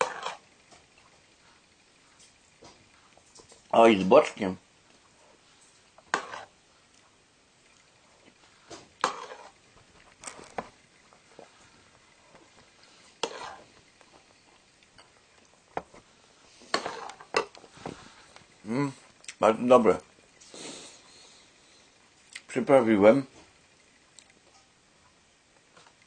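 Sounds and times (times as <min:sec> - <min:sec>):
person slurping soup: 0:06.2 - 0:06.6, 0:09.0 - 0:09.6, 0:13.2 - 0:13.7, 0:16.7 - 0:17.3.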